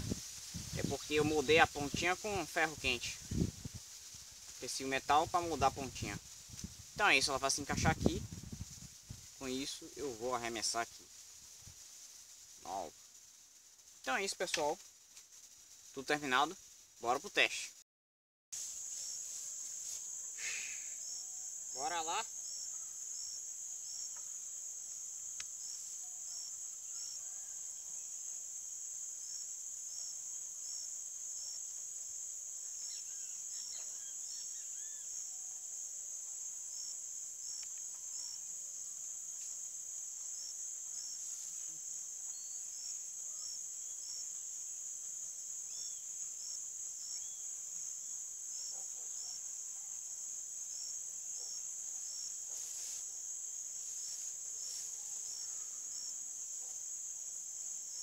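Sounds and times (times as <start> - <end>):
insects chirring in grass: 0.0 - 17.8, 18.6 - 58.0
faint rustles or knocks: 52.4 - 53.2.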